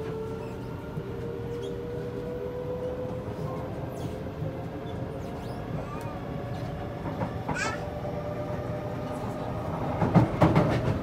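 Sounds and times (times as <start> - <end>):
train wheels rumbling on track: 0.0 - 11.0
faint high squeaks: 0.3 - 0.8, 4.8 - 6.7.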